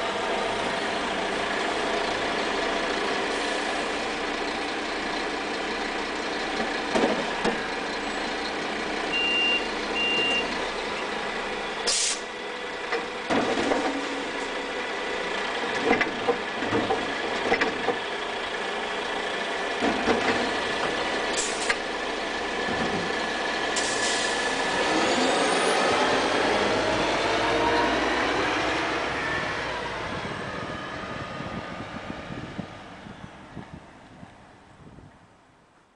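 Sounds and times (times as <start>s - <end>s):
diesel engine revving: 0.0s - 33.7s
short air hisses: 11.9s - 12.3s.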